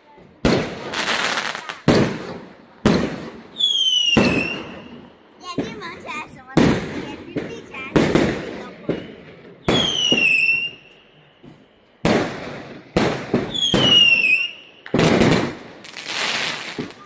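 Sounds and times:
firework bangs and pops: 0:00.2 - 0:17.0
bottle rocket whistles: 0:09.7 - 0:11.0, 0:13.5 - 0:14.8.

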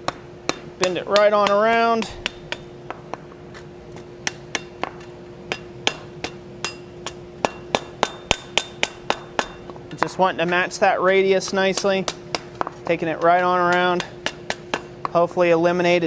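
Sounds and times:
wooden mallet striking hot steel: 0:00.0 - 0:03.3, 0:04.2 - 0:10.6, 0:11.4 - 0:15.2
steady hum: 0:00.0 - 0:16.0.

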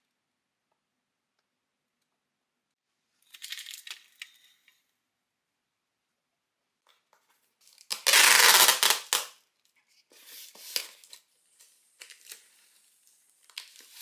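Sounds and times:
packing tape ripping off roll: 0:07.7 - 0:09.4.

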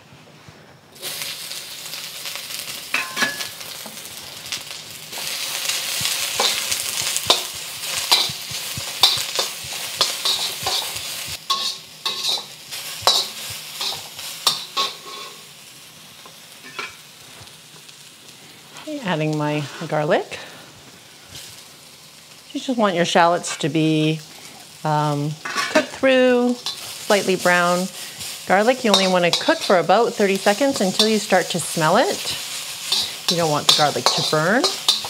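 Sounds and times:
utensil scraping a wok: 0:01.0 - 0:15.6, 0:23.4 - 0:35.0
shallots sizzling in hot oil: 0:01.0 - 0:35.0.

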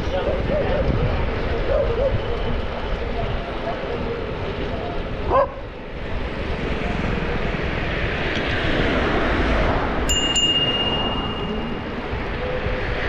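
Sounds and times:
wind and road noise: 0:00.0 - 0:13.0
bicycle bell ringing: 0:10.1 - 0:12.0.

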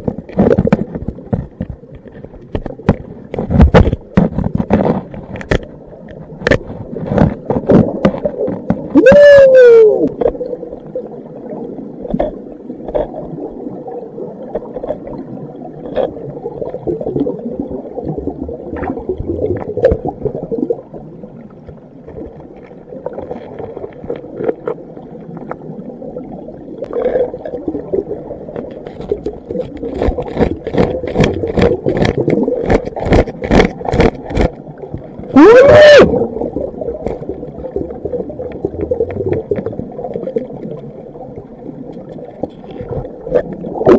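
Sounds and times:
clicks and scrapes against rock: 0:00.0 - 0:05.7, 0:28.6 - 0:34.6
muffled underwater water movement: 0:00.0 - 0:43.9.

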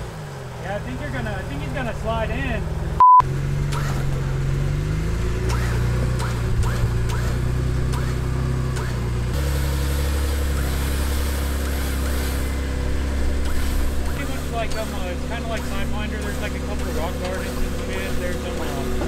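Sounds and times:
truck engine low drone: 0:00.0 - 0:19.0
short high beep: 0:03.0 - 0:03.2.

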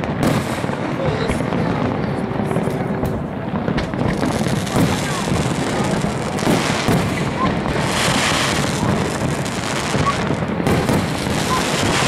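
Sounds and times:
fireworks bursting and crackling: 0:00.0 - 0:12.0.

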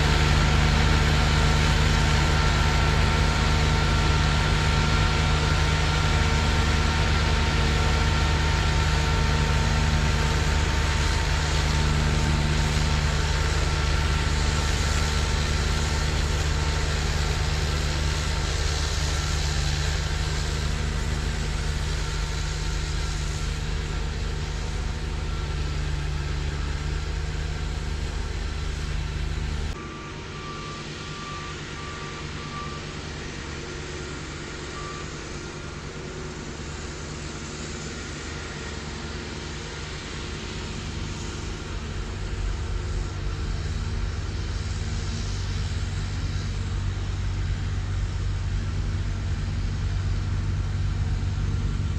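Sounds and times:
snowblower throwing snow: 0:00.0 - 0:30.0
tractor engine running: 0:00.0 - 0:51.9
faint reversing beep: 0:29.7 - 0:35.8.

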